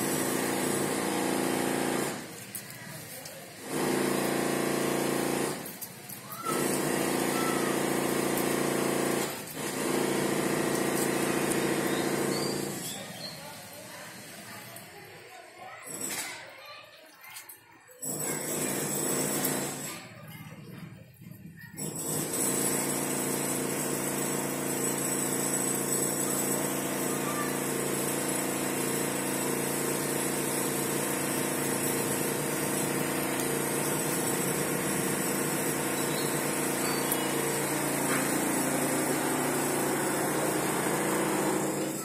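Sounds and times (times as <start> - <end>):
motor humming: 6.5 - 12.8.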